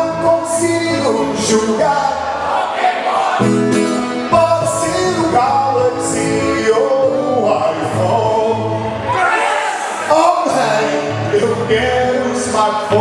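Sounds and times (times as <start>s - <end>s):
person singing: 0.0s - 2.3s, 3.1s - 9.0s, 10.0s - 13.0s
acoustic guitar strummed: 0.0s - 9.2s, 9.9s - 13.0s.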